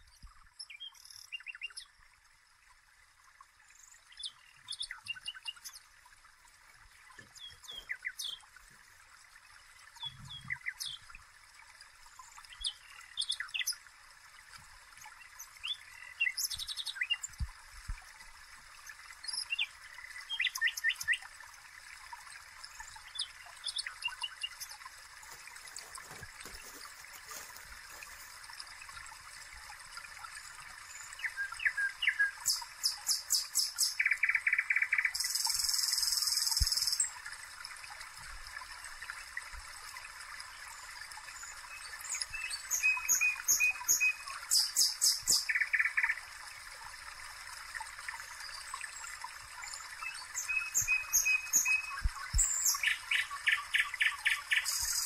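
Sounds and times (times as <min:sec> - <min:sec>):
birds chirping: 0:07.2 - 0:08.5.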